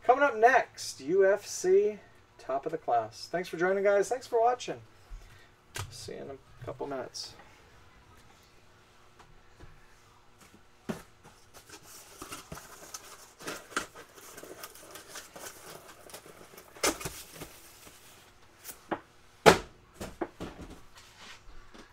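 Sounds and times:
objects being handled: 0:10.3 - 0:19.0.

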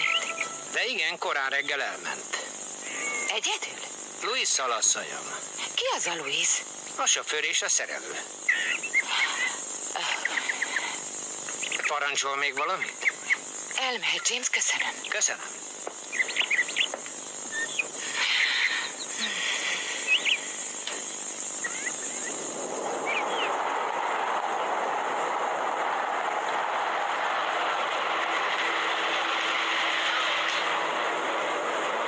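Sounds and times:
short high chirps: 0:00.0 - 0:00.8
car passing by: 0:22.5 - 0:32.0.

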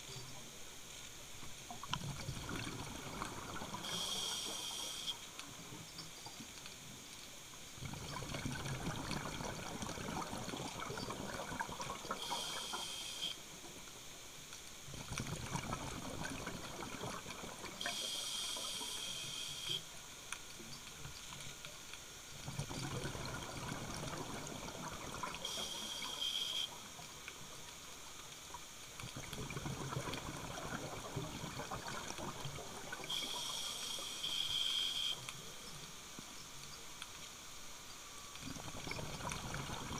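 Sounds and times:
gurgling exhaled bubbles: 0:01.8 - 0:04.1, 0:07.8 - 0:12.6, 0:14.9 - 0:17.9, 0:22.4 - 0:25.6, 0:29.0 - 0:33.3, 0:38.4 - 0:39.9
regulator inhalation hiss: 0:03.8 - 0:05.2, 0:12.1 - 0:13.4, 0:17.8 - 0:19.8, 0:25.4 - 0:26.8, 0:33.1 - 0:35.2.

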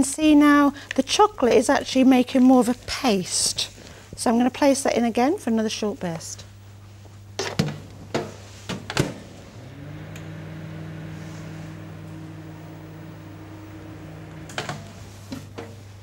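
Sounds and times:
microwave humming: 0:07.7 - 0:16.0.

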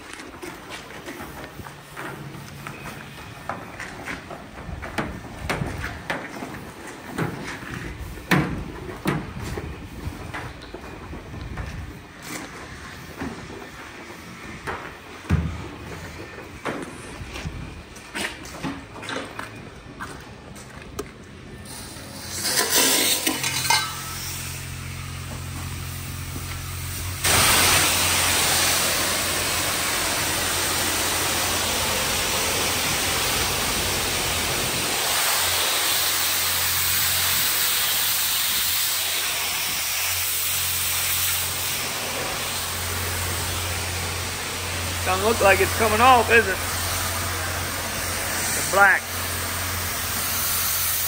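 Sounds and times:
pressure wand spraying water: 0:25.7 - 0:51.0.

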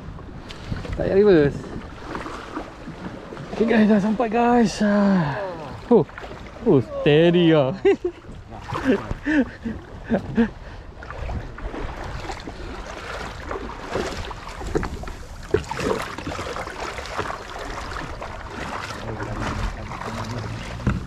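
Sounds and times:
wind buffeting microphone: 0:00.0 - 0:04.7, 0:05.8 - 0:16.8
kayak gear knocks and bumps: 0:14.0 - 0:16.4, 0:20.6 - 0:21.0.

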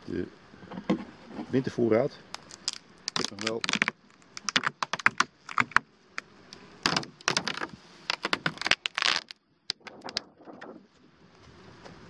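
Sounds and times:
plastic sheet crackling: 0:02.4 - 0:05.8, 0:06.8 - 0:10.7.

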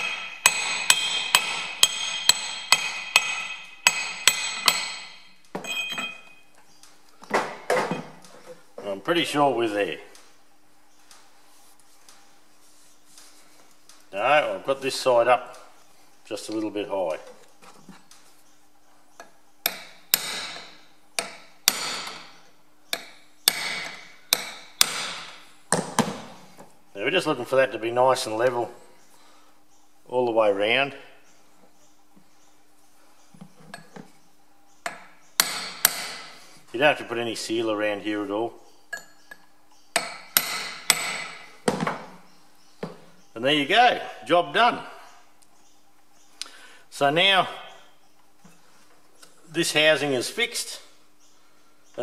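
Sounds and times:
hammer striking metal pipe: 0:00.0 - 0:06.2
hammer striking steel punch: 0:00.0 - 0:06.2, 0:19.7 - 0:22.3, 0:23.0 - 0:26.2, 0:34.9 - 0:36.3, 0:40.0 - 0:41.4.

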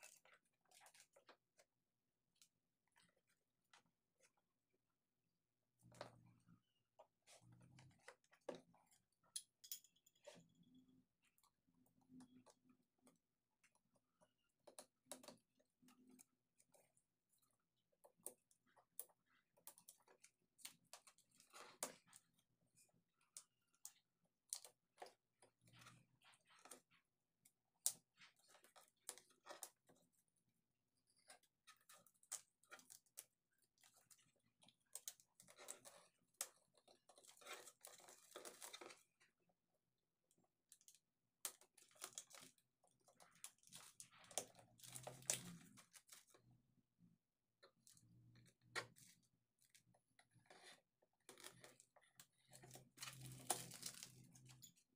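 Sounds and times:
plastic shrink wrap crinkling: 0:52.6 - 0:54.7.

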